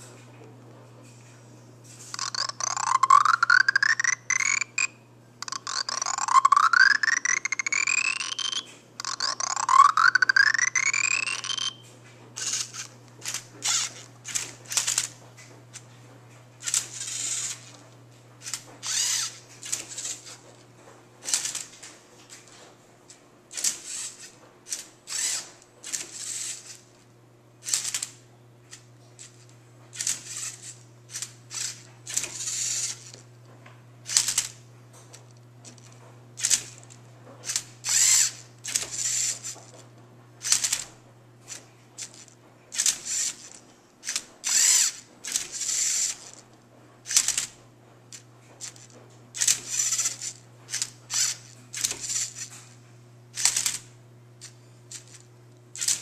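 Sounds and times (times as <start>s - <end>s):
geared motor whirring: 2.0s - 15.1s, 16.6s - 17.8s, 18.4s - 20.6s, 23.6s - 26.8s, 30.0s - 33.2s, 35.6s - 39.8s, 40.4s - 46.4s, 47.1s - 52.6s
plastic clicks: 2.1s - 15.5s.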